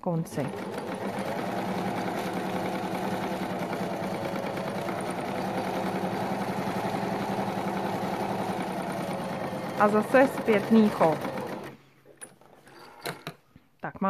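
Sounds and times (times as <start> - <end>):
electric sewing machine running: 0.2 - 11.8.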